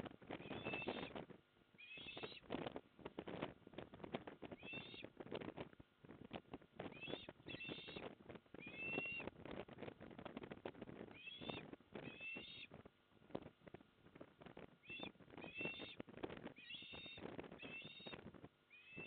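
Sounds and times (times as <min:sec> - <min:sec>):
wind buffeting microphone: 0:00.0 - 0:01.4, 0:02.2 - 0:19.0
osprey whistled calls: 0:00.4 - 0:01.1, 0:01.8 - 0:02.4, 0:04.6 - 0:05.1, 0:06.9 - 0:09.3, 0:11.1 - 0:12.7, 0:14.8 - 0:16.0, 0:16.6 - 0:19.0.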